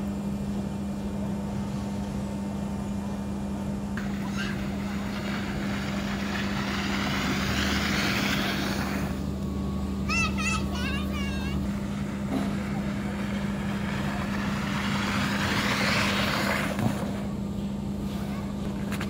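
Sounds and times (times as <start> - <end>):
low machine hum: 0.0 - 19.0
tube sliding down dry slide: 4.0 - 9.3, 11.4 - 17.4.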